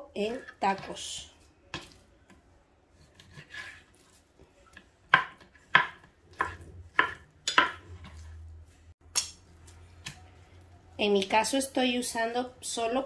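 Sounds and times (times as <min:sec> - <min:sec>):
knife chopping on cutting board: 0:05.1 - 0:08.3.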